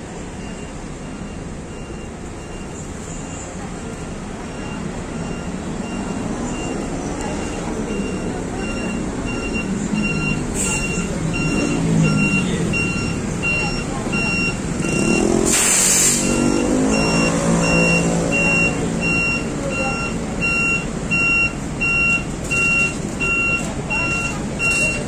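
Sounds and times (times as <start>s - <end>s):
bus engine running: 0.0s - 25.0s
electronic warning beep: 0.3s - 25.0s
burst of air hiss: 15.5s - 16.4s.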